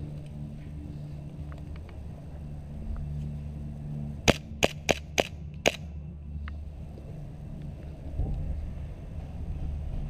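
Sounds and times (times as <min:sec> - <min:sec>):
airsoft pistol shots: 0:04.3 - 0:05.8.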